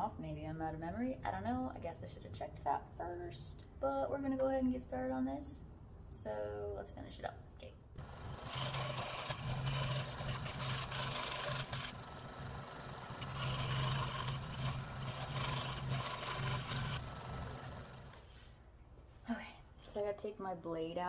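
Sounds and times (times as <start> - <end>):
scroll saw cutting wood: 8.0 - 18.2.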